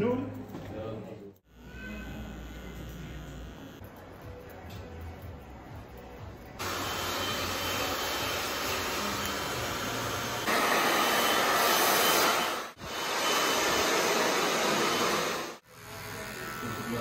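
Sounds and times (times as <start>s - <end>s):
hair dryer blowing: 6.6s - 15.6s.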